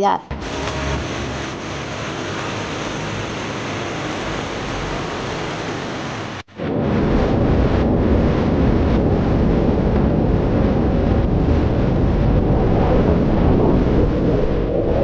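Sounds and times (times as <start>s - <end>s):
roar of rushing whitewater: 0.4s - 14.7s.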